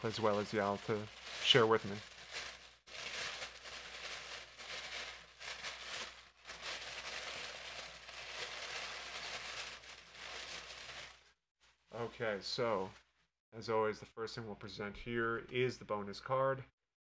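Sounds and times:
packaging rustling and crinkling: 0.0 - 11.4.

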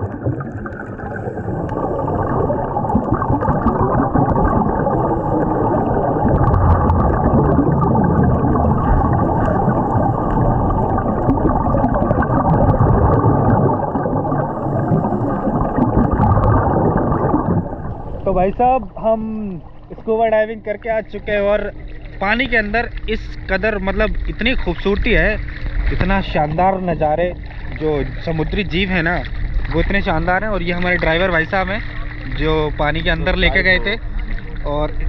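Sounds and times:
underwater bubbles gurgling: 0.0 - 35.0.

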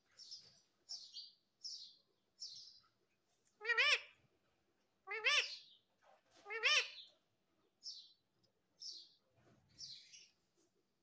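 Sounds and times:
parakeet calling: 3.6 - 4.2, 5.1 - 5.8, 6.4 - 7.1.

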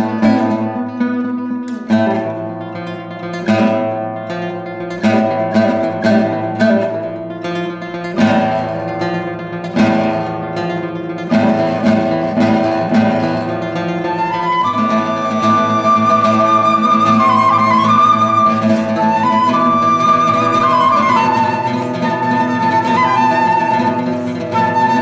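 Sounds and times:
classical guitar strumming chords: 0.0 - 25.0
flute holding high note: 14.1 - 25.0.

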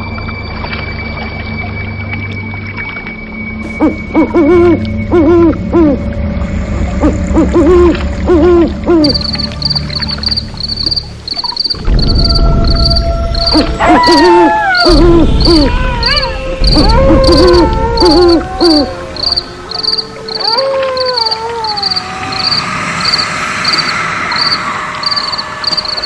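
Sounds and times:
owl hooting: 3.8 - 6.0, 7.0 - 26.0
crickets chirping: 9.0 - 26.0.

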